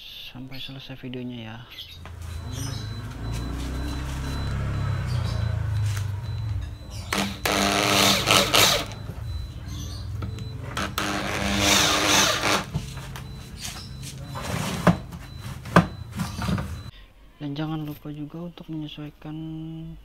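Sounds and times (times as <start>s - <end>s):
electric drill boring into wood: 7.1s - 9.0s, 10.8s - 12.7s.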